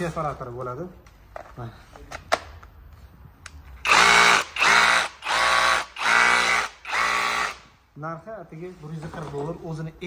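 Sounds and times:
drill motor whining: 3.8 - 7.6.

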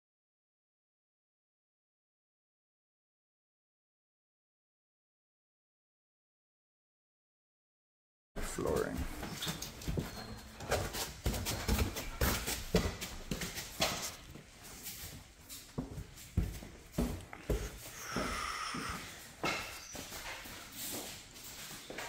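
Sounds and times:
footsteps on stairs and plank floor: 8.4 - 22.0.

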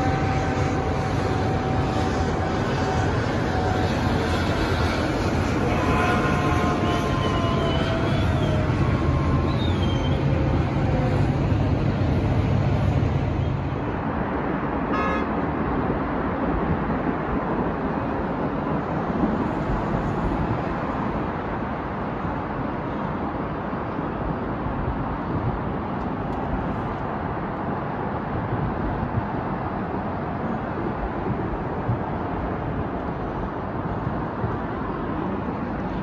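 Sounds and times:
diesel engine humming: 0.0 - 13.8
city street traffic noise: 0.0 - 36.0.

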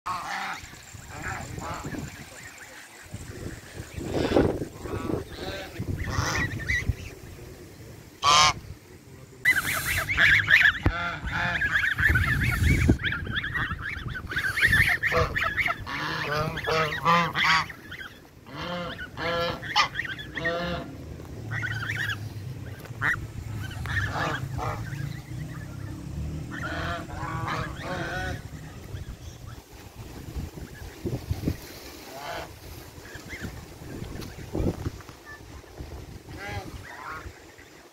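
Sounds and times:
geese honking: 0.1 - 7.4, 8.0 - 8.7, 9.4 - 37.9
low rumble: 18.8 - 36.9.

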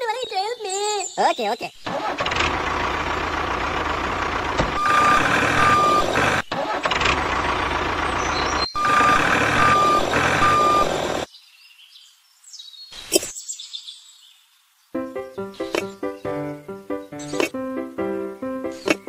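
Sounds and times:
tractor engine running: 1.9 - 11.3
reversing alarm beeping: 4.7 - 6.3, 8.5 - 11.3.

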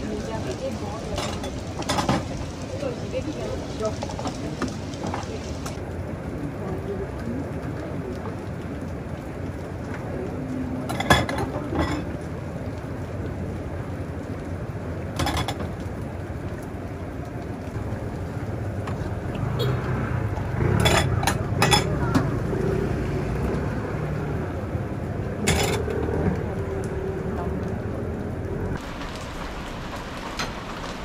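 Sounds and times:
steady hiss: 28.8 - 31.0.

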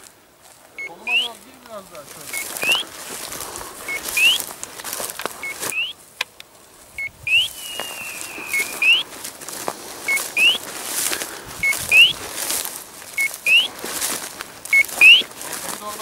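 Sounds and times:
footsteps in dry stubble: 0.0 - 16.0
beeper collar beeping: 0.8 - 1.4, 2.2 - 2.9, 3.9 - 4.4, 5.4 - 6.0, 7.0 - 9.0, 10.1 - 10.6, 11.6 - 12.2, 13.2 - 13.7, 14.7 - 15.3
falling whistle-like tone: 7.3 - 9.0.

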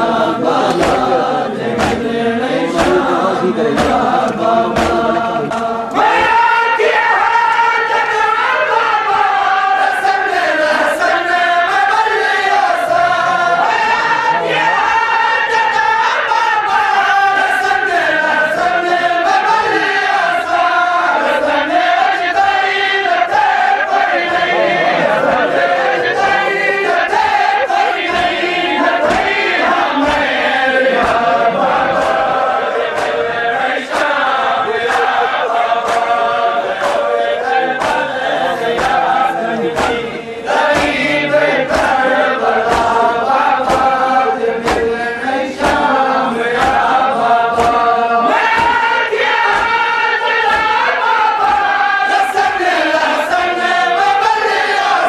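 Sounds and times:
crowd of men chanting: 0.0 - 55.0
hands beating on chests: 0.4 - 6.5, 27.0 - 51.8.

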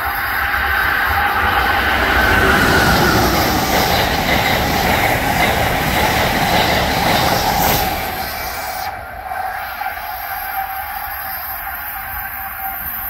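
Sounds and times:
train wheels rushing on rails: 0.0 - 13.0.

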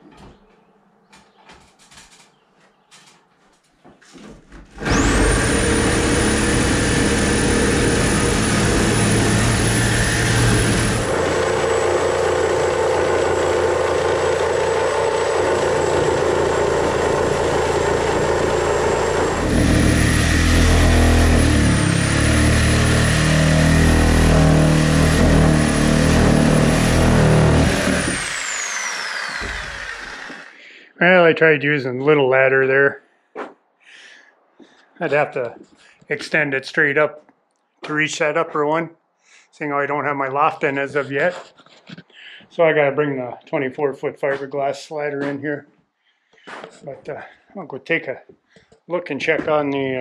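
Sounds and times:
electric tool motor whine: 4.8 - 30.6.

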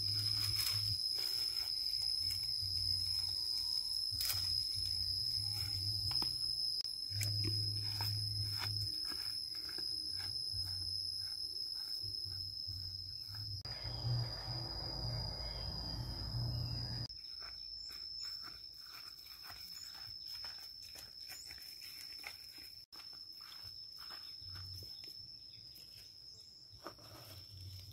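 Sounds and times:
high-pitched insect drone: 0.0 - 27.9.

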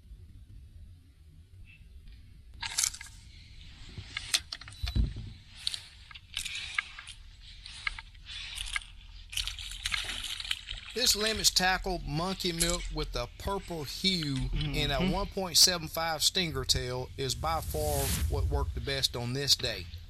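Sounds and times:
fishing gear scraping and rattling: 3.8 - 14.5
low wind rumble: 16.3 - 20.0.

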